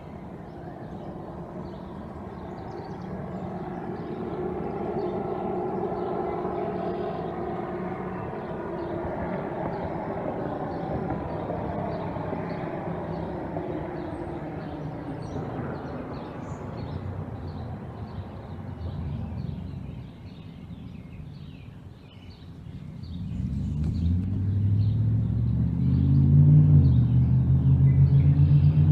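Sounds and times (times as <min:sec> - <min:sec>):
vehicle driving past: 0:00.3 - 0:21.6, 0:22.4 - 0:28.9.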